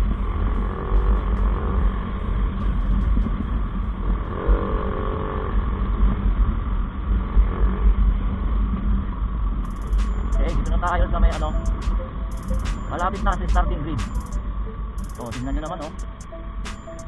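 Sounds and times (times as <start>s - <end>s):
motorcycle running: 0.0s - 6.4s
wind rumble on microphone: 0.0s - 9.6s
short pitched tone: 9.7s - 17.0s.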